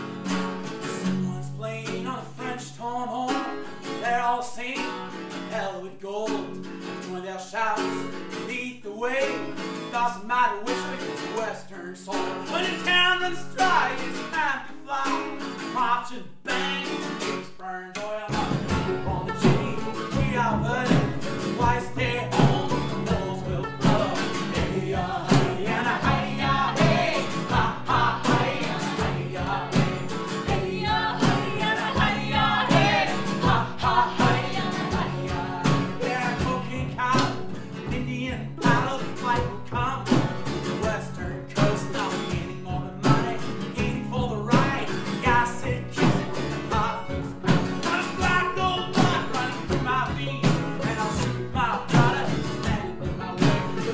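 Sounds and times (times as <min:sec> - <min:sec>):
banjo: 0:00.0 - 0:53.9
strummed acoustic guitars: 0:00.0 - 0:53.9
upright bass: 0:17.9 - 0:53.9
voices singing together: 0:18.0 - 0:37.4, 0:41.6 - 0:53.9
steady drum beat: 0:18.3 - 0:53.9.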